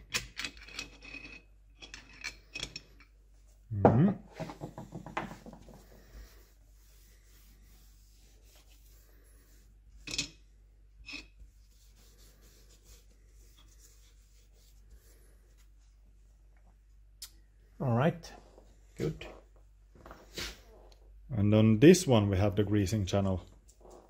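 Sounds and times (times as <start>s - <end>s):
hands and tool scraping metal: 0.0s - 3.1s, 11.0s - 14.8s.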